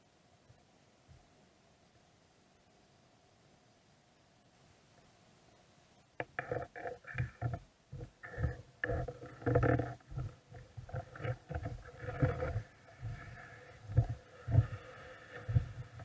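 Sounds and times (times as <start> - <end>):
underwater knocks and gurgles: 6.2 - 16.0.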